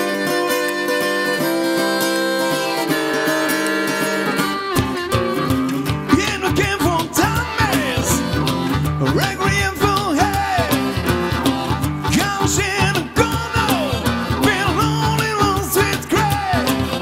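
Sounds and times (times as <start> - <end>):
cajon beat: 0.0 - 17.0
strummed acoustic guitar: 0.0 - 17.0
wailing harmonica: 0.0 - 17.0.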